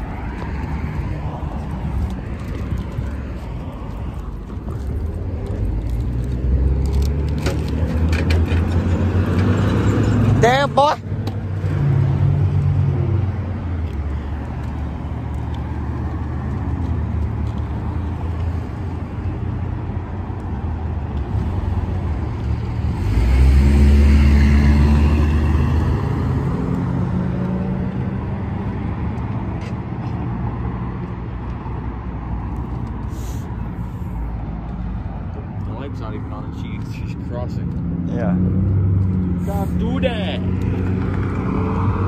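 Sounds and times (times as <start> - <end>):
low rumble of cars: 0.0 - 42.0
vehicle passing close: 21.3 - 28.7, 35.7 - 42.0.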